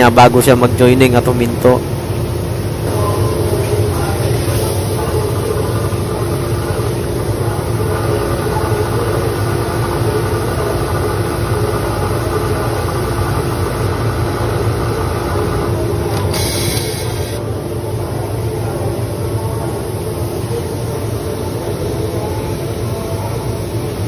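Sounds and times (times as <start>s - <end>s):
pneumatic air hiss: 16.1s - 17.4s.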